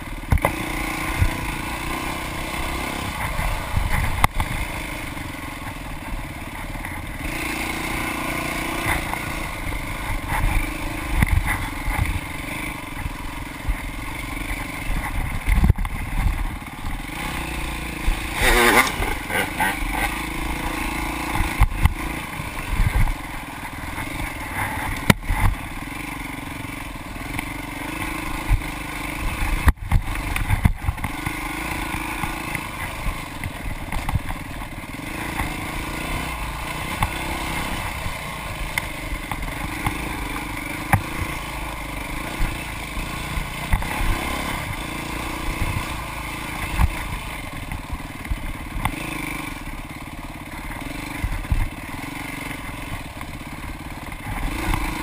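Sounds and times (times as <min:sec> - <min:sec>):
dirt bike engine revving: 0:00.0 - 0:55.0
bike clattering over rough ground: 0:13.0 - 0:25.8.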